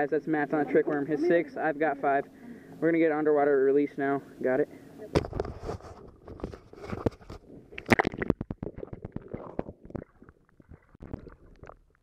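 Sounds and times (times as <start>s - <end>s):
underwater gurgling and bubbling: 6.4s - 12.0s
water splashing: 7.6s - 12.0s.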